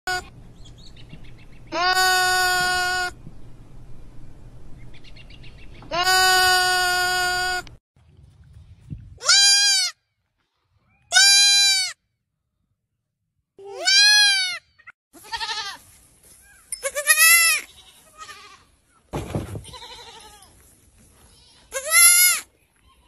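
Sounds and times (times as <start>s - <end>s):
baby goats bleating: 0.1s - 0.3s, 1.7s - 3.2s, 5.9s - 7.7s, 9.2s - 10.0s, 11.1s - 12.0s, 13.6s - 18.7s, 19.6s - 20.6s, 21.2s - 23.0s
low rumble: 3.1s - 5.9s.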